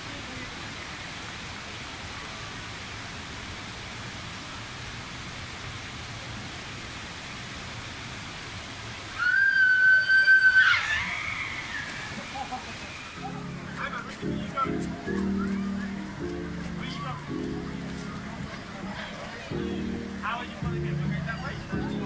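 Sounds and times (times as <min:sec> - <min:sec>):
running splashing water: 0:00.0 - 0:22.0
shrill high-pitched cry: 0:09.2 - 0:11.9.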